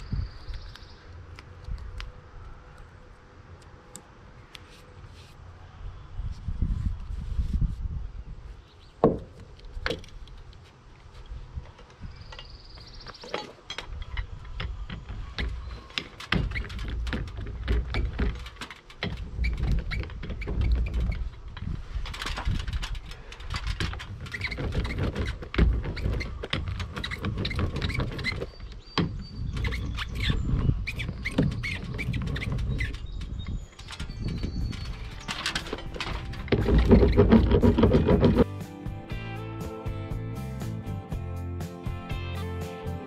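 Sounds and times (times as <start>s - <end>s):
tape roller rolling rumble: 13.8s - 38.6s.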